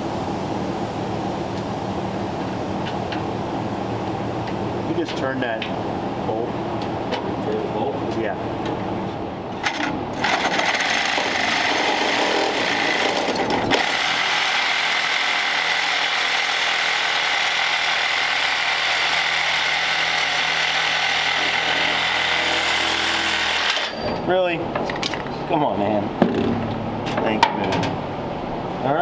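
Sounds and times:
reciprocating saw cutting metal: 10.2 - 24.1.

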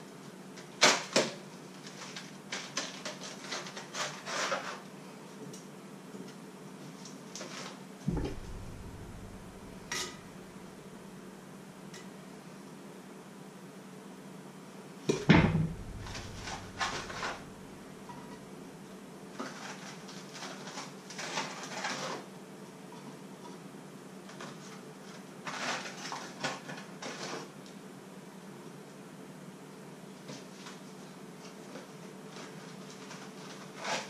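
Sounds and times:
loud knock: 8.1 - 11.1, 15.2 - 18.4
steady low hum: 8.1 - 11.9, 15.2 - 19.2
clatter and rustling of cardboard box: 19.4 - 22.3, 24.3 - 27.5.

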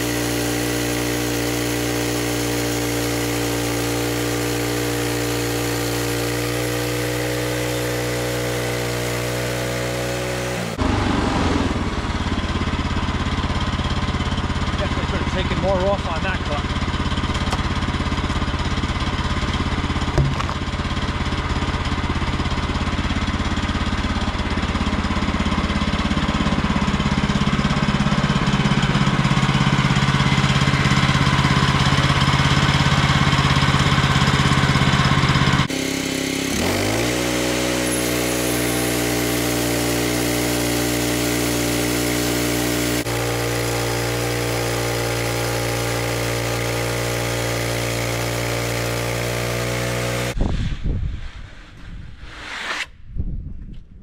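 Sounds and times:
band blade cutting log: 0.0 - 11.7, 20.0 - 20.8, 35.3 - 50.4, 52.2 - 53.0
sawmill engine running: 0.0 - 50.4.

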